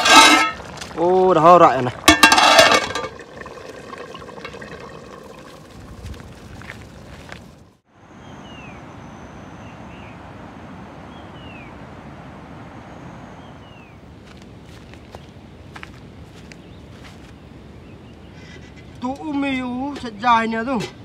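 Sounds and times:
running water rushing: 0.0 - 7.7.

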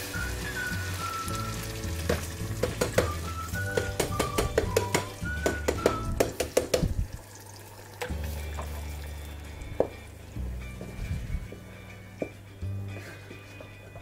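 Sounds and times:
background music with a beat: 0.0 - 6.7, 8.4 - 14.0
liquid pouring into pot: 6.4 - 9.5.

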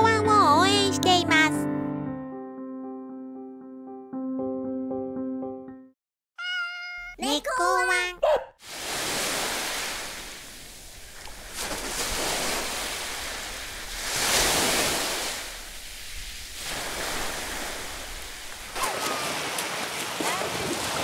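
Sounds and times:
sea surf washing onto beach: 8.6 - 21.0.

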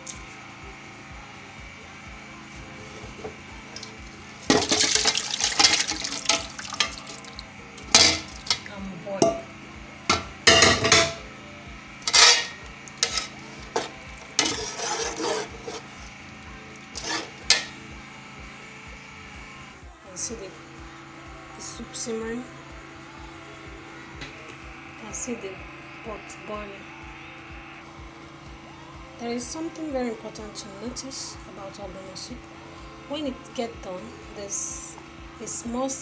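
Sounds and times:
wet splashing in pot: 3.8 - 8.7
metal spoon scraping cooking pot: 12.1 - 15.9, 17.0 - 17.8.

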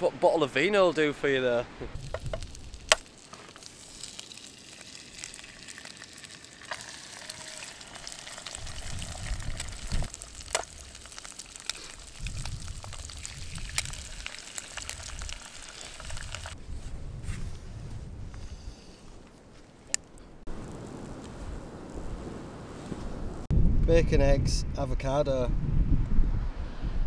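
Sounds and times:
fat popping: 1.8 - 16.6
food sizzling in a pan: 2.0 - 16.6.

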